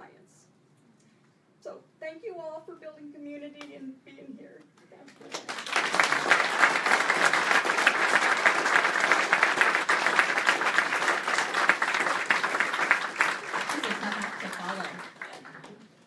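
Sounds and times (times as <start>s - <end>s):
audience applauding: 5.3s - 16.0s.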